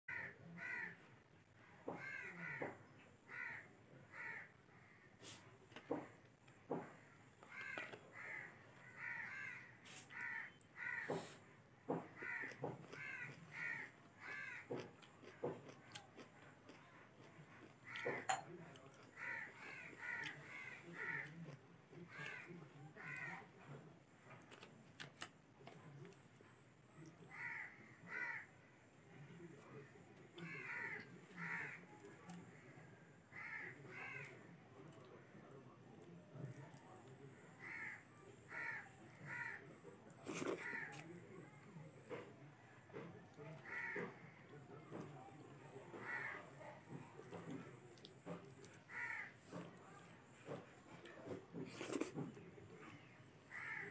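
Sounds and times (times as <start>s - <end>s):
crow cawing: 0.1s - 1.0s, 1.9s - 5.1s, 7.4s - 11.3s, 11.9s - 14.9s, 19.2s - 21.4s, 22.1s - 23.4s, 27.3s - 28.5s, 30.4s - 31.9s, 33.3s - 34.4s, 37.6s - 39.6s, 40.6s - 41.1s, 43.5s - 44.3s, 45.9s - 46.5s, 48.9s - 49.7s, 53.5s - 53.9s
eating clicks and smacks: 12.0s - 20.5s.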